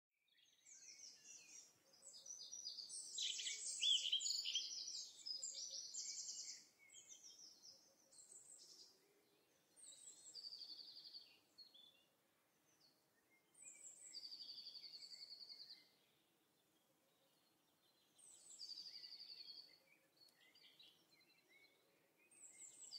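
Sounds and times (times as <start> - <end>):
songbirds chirping and trilling: 0.3 - 22.9.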